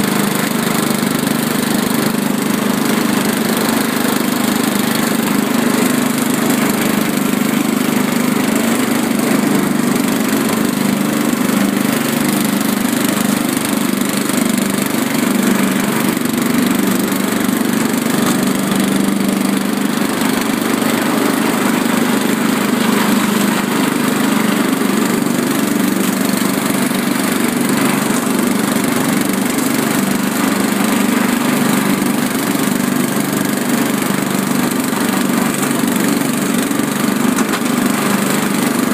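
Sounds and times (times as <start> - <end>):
riding lawn mower engine: 0.0 - 38.9.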